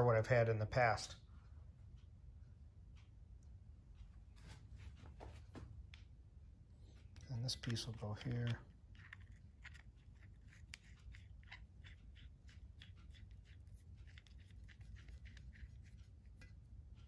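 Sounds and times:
light clicks and scrapes of metal fitting: 7.3 - 16.7.

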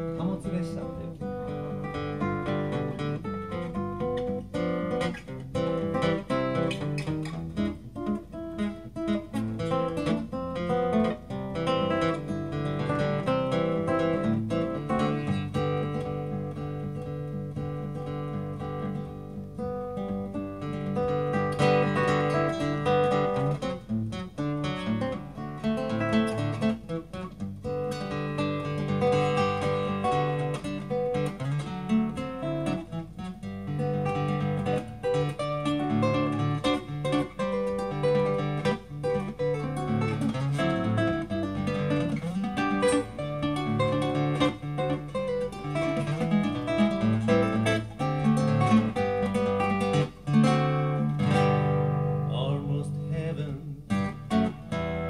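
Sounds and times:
fingerstyle acoustic guitar: 0.0 - 55.0.

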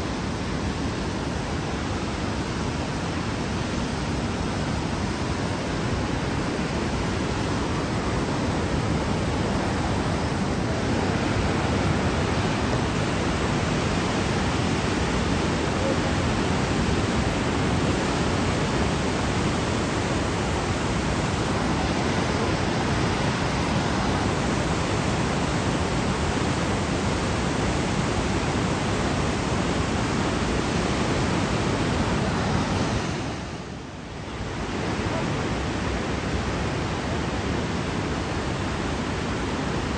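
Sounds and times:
river rushing: 0.0 - 39.9.

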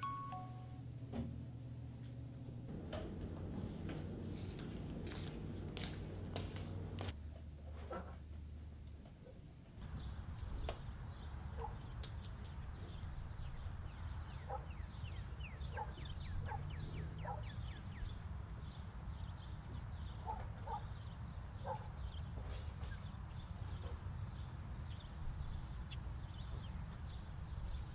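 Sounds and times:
steady low rumble: 0.8 - 7.3.

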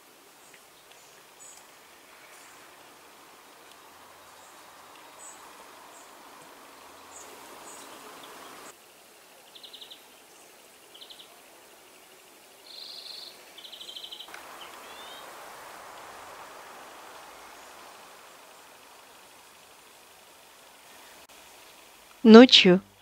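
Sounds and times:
steady outdoor hiss: 0.0 - 23.0
songbirds chirping and trilling: 0.4 - 8.7, 12.6 - 18.2.

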